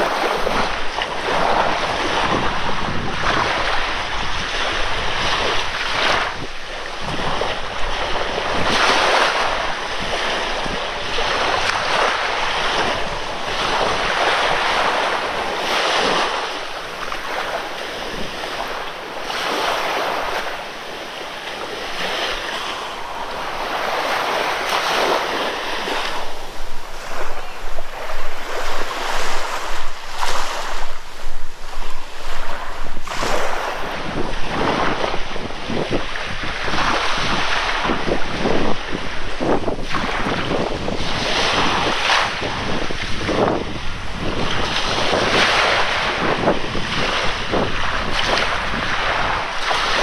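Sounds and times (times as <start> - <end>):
surf washing onto beach: 0.0 - 50.0
wind on microphone: 0.0 - 50.0.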